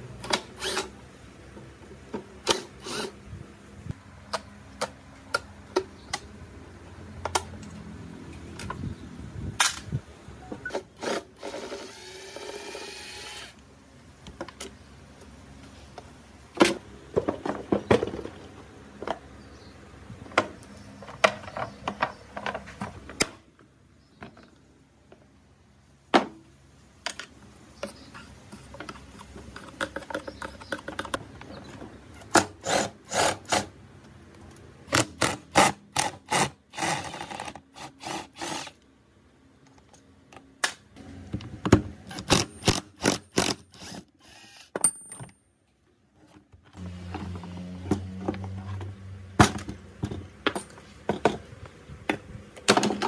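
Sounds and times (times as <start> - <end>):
tools and small parts clattering: 16.6 - 19.3, 20.3 - 23.4, 27.0 - 32.6, 41.4 - 43.8, 44.7 - 46.5, 47.2 - 53.0.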